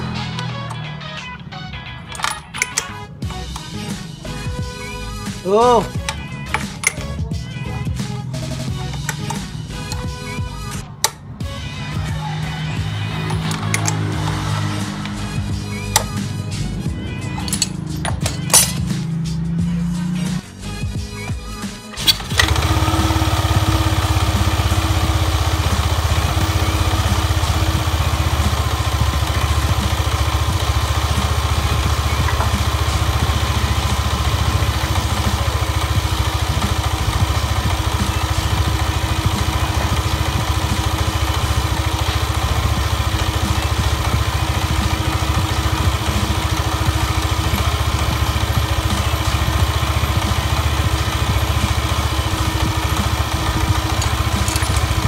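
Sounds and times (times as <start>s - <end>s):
scooter engine idling: 0.0s - 55.0s.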